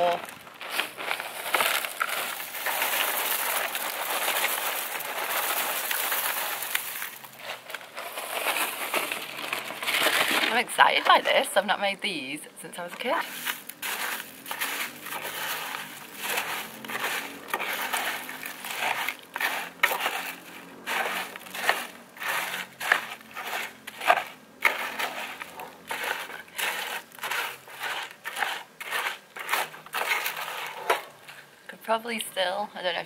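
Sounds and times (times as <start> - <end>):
cereal crunching while stirred: 0.0 - 10.6, 13.2 - 31.4.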